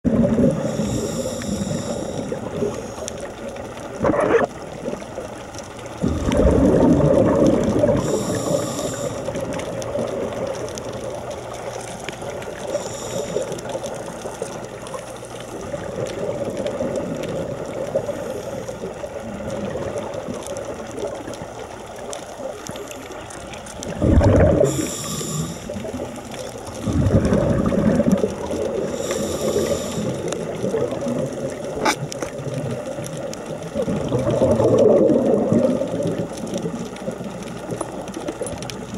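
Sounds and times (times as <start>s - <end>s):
rush of bubbles: 0.0s - 38.9s
regulator hiss on inhalation: 0.6s - 3.0s, 8.0s - 9.4s, 12.6s - 14.4s, 24.5s - 26.1s, 28.9s - 30.5s.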